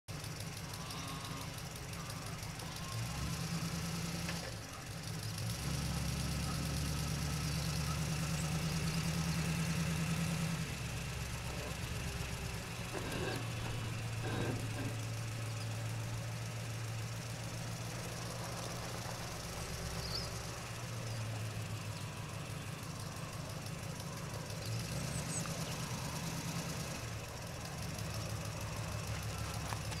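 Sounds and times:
low engine-like rumble: 0.1s - 30.0s.

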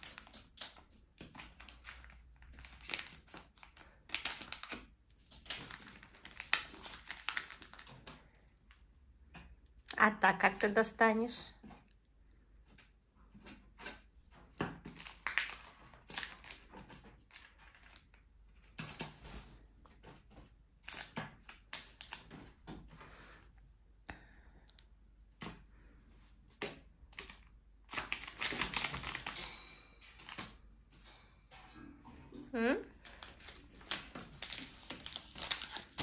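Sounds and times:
packaging crinkling: 0.0s - 8.4s, 14.8s - 19.4s, 20.8s - 22.6s, 26.6s - 29.4s, 33.0s - 36.0s.

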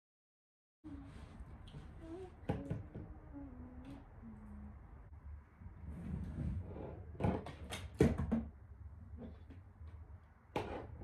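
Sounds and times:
objects knocking and clattering: 7.2s - 8.6s.

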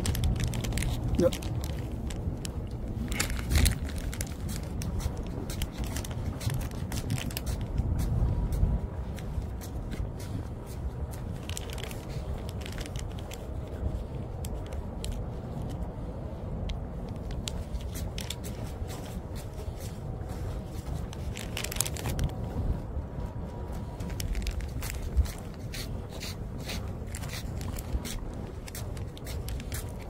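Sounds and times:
steady low rumble: 0.0s - 30.0s
footsteps on steel deck: 4.4s - 11.4s.

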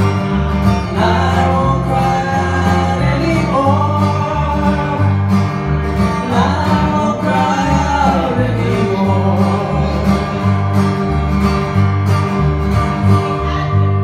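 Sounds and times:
acoustic guitars strummed: 0.0s - 14.0s
person singing slow song: 0.8s - 10.9s.

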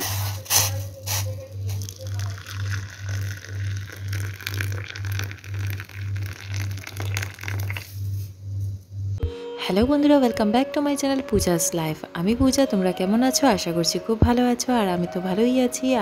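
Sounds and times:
water pouring into mug: 1.8s - 8.0s.

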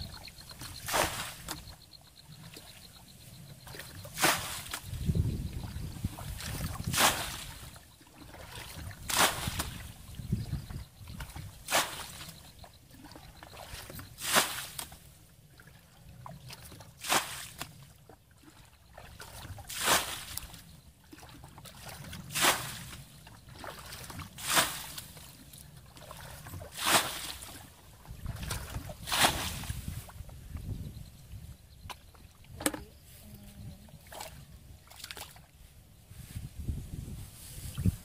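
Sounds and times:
bucket splashing water: 0.5s - 1.8s, 3.7s - 4.9s, 6.1s - 9.9s, 11.6s - 12.3s, 16.7s - 17.7s, 18.6s - 25.3s, 26.0s - 27.7s, 28.3s - 29.9s.

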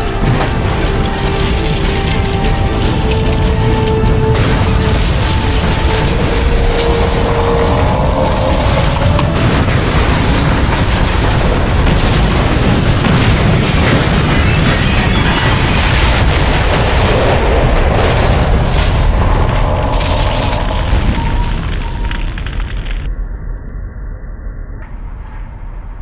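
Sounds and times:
background music: 0.0s - 15.3s
crash and explosion effects: 0.0s - 23.2s.

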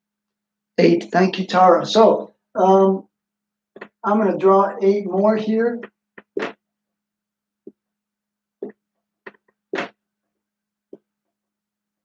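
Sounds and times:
marker scratching on whiteboard: 5.8s - 6.6s, 8.6s - 10.0s.

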